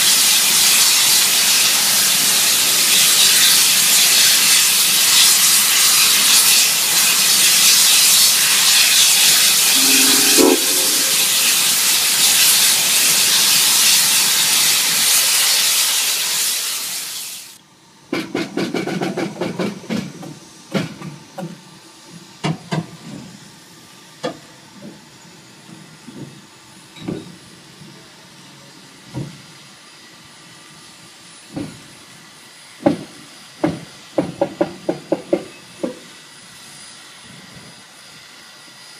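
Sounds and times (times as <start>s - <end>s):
steam venting hiss: 0.0s - 17.6s.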